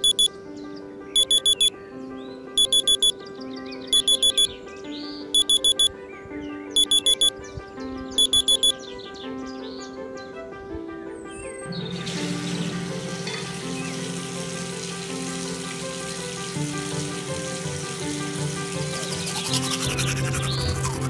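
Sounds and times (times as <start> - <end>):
digital alarm beeping: 0.0 - 0.3, 1.2 - 1.7, 2.6 - 3.1, 3.9 - 4.5, 5.4 - 5.9, 6.8 - 7.3, 8.2 - 8.8
short chirps: 0.0 - 0.3, 1.2 - 1.7, 2.6 - 3.1, 3.9 - 4.5, 5.4 - 5.9, 6.8 - 7.3, 8.2 - 8.7
soft background music: 0.0 - 21.0.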